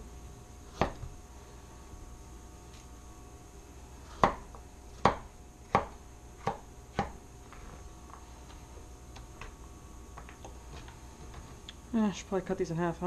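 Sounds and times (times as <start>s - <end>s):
knife chopping on cutting board: 0.7s - 1.2s, 4.0s - 7.2s.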